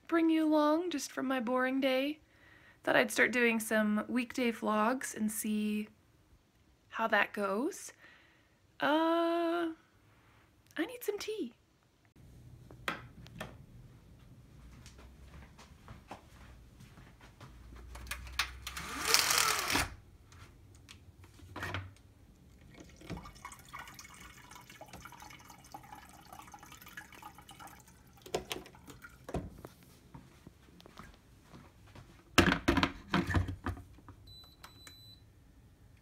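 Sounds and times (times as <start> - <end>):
water trickling into kettle: 22.4 - 29.4.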